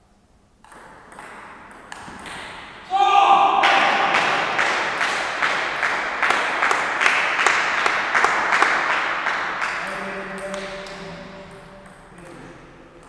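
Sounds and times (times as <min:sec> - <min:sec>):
audience applauding: 0:03.6 - 0:09.8.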